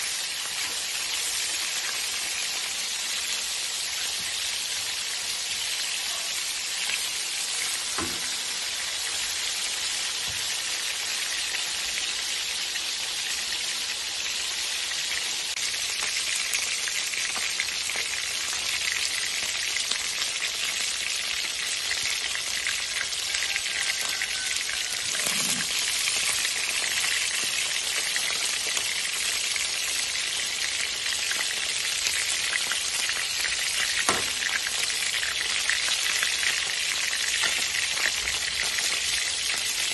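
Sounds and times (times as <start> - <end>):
fish sizzling in hot oil: 0.0 - 39.9.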